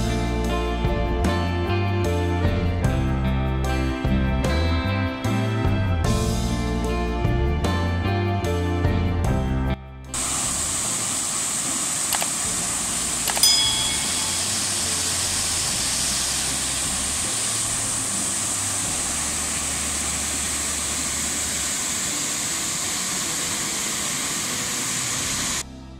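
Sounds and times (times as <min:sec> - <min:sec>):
waterfall rushing over rocks: 0:10.2 - 0:25.6
brief clicks: 0:12.1 - 0:12.4, 0:13.3 - 0:13.5.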